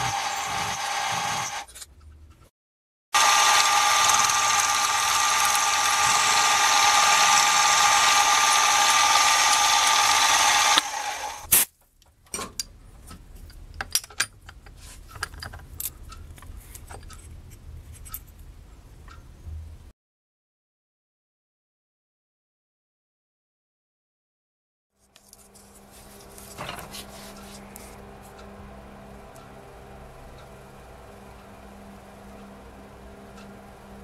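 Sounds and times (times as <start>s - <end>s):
milling machine cutting whine: 0.0s - 1.7s, 3.2s - 11.5s, 25.8s - 34.0s.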